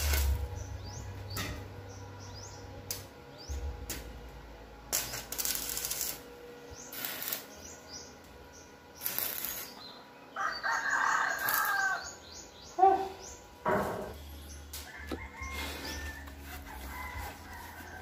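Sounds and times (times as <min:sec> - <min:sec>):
arc welder crackling: 0:00.0 - 0:01.5, 0:02.8 - 0:10.0, 0:11.2 - 0:12.2
rooster crowing: 0:10.4 - 0:12.2, 0:14.8 - 0:18.0.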